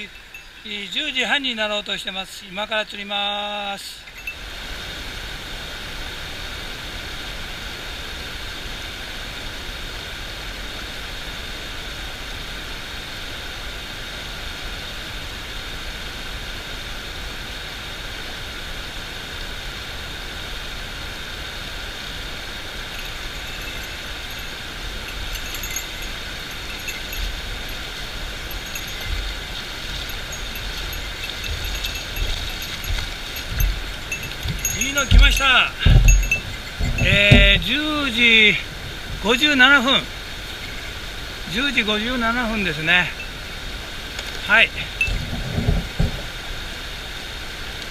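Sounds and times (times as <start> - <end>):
river rapids rushing over stones: 4.0 - 47.9
low bumps: 22.9 - 39.6.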